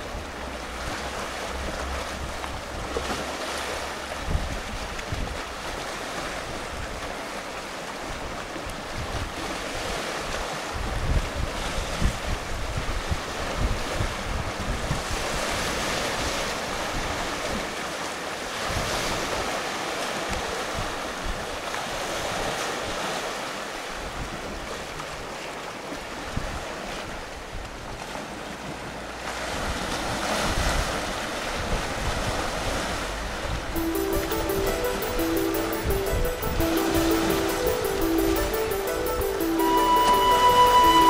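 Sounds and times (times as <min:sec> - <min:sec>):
wind rumbling on microphone: 0:04.1 - 0:05.8, 0:10.3 - 0:16.4.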